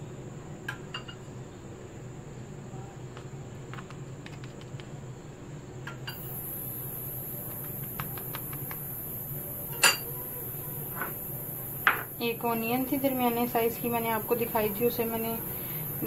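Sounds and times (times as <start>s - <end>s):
background hum and whine: 0.0s - 16.0s
high hiss: 6.1s - 16.0s.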